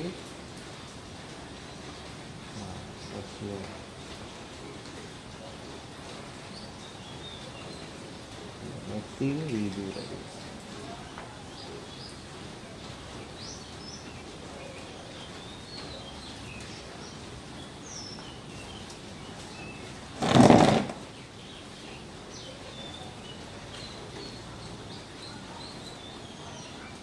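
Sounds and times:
small birds chirping: 6.3 - 27.0.

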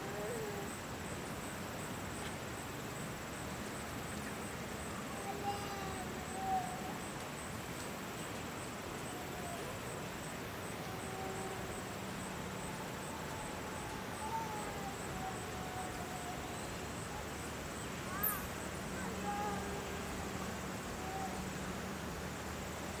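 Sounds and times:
steady hiss: 0.0 - 23.0.

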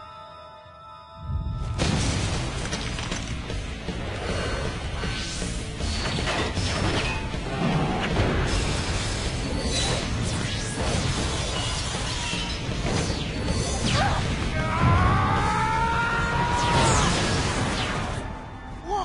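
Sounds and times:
action music: 0.0 - 19.0
debris shattering: 1.8 - 3.7.

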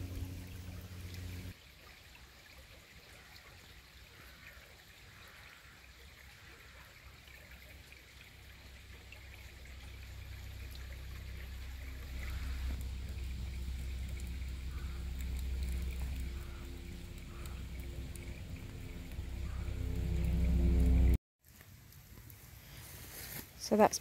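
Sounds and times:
low rumble: 0.0 - 1.5, 8.6 - 21.2
stream trickling over stones: 0.0 - 24.0.

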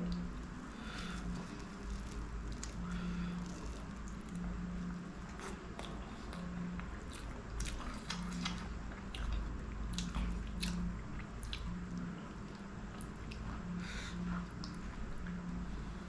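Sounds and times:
wet chewing and lip smacks: 5.2 - 13.6.

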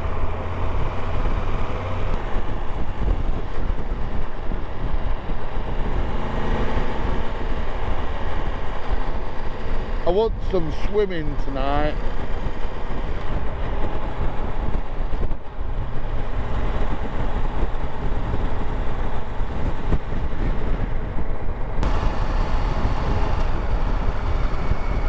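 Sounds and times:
road noise: 0.0 - 25.0
wind rush: 0.0 - 25.0
motorcycle engine: 12.0 - 25.0.

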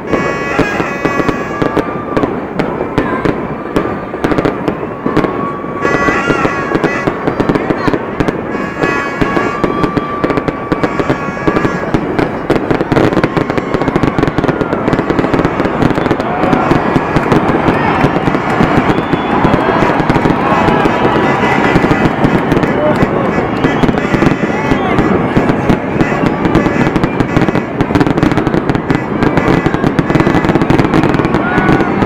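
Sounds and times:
fireworks popping and crackling: 0.0 - 32.0
high steady whistle: 8.6 - 11.9, 12.9 - 25.2.

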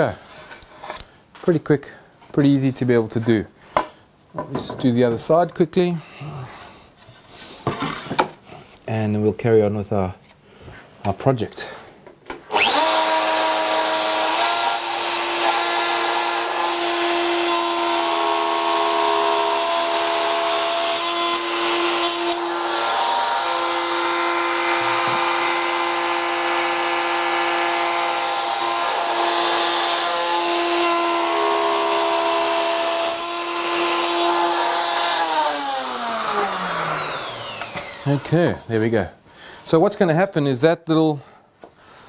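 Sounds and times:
router whining while cutting: 12.5 - 38.4.

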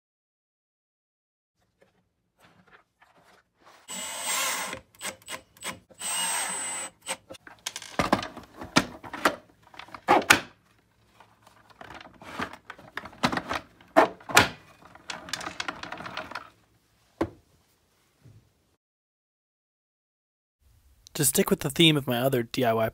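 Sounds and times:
cordless drill driving screw: 3.9 - 7.4.

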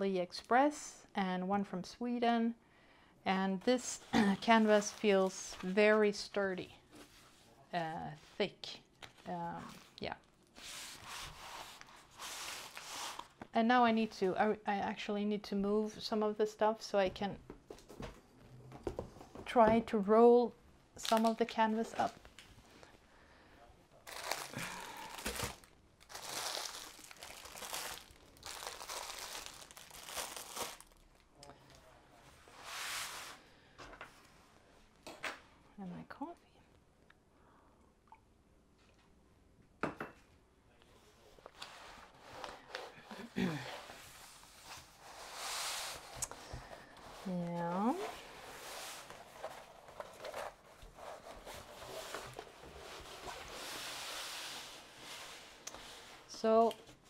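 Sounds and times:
plastic packaging crinkling: 4.2 - 5.8, 21.0 - 21.4, 24.0 - 31.3
paper rustling and crackling: 24.1 - 31.0, 48.2 - 54.2
sliding rub: 43.7 - 46.4, 47.0 - 49.7.

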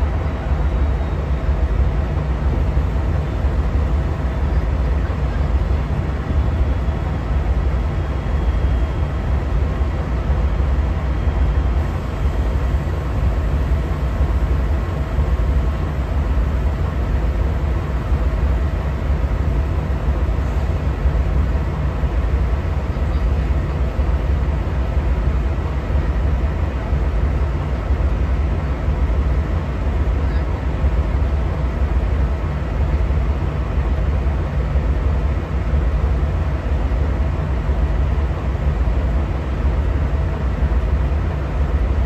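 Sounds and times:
diesel locomotive rumbling: 0.0 - 42.0
faint steady whine: 0.0 - 42.0.

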